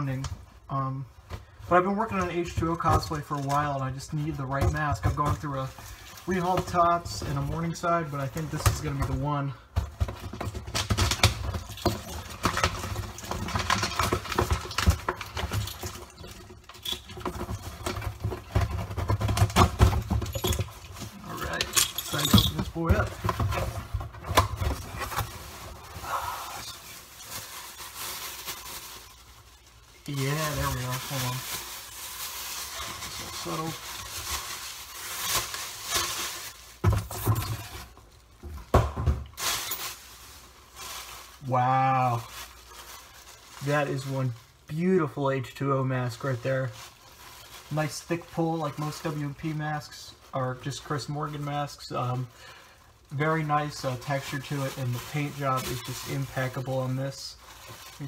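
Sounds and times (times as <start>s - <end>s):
tissue paper rustling and crinkling: 1.4s - 38.4s, 39.3s - 58.0s
box knocks and rubbing: 17.2s - 20.7s.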